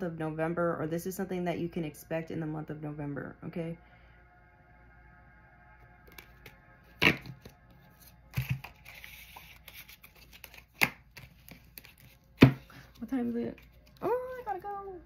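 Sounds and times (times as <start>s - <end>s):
cards being shuffled: 6.1s - 14.8s.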